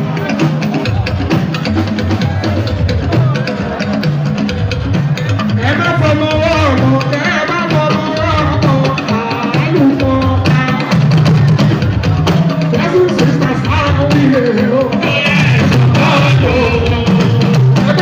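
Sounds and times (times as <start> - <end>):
drums and percussion: 0.0 - 18.0
man singing into a microphone: 5.4 - 11.3, 12.6 - 18.0.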